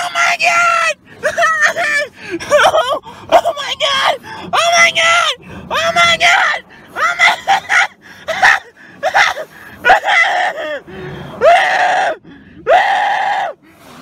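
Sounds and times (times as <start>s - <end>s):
person screaming: 0.0s - 10.8s, 11.4s - 13.6s.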